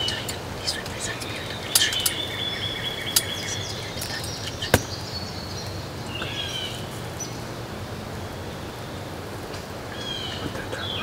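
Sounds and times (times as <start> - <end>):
songbirds whistling and chirping: 0.0 - 7.4
outdoor background: 0.0 - 11.0.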